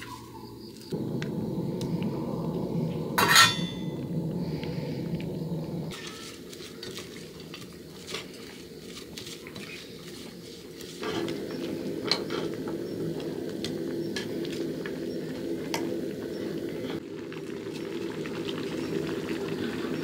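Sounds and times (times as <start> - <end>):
broth boiling: 0.8 - 20.0
low hum: 0.9 - 5.9.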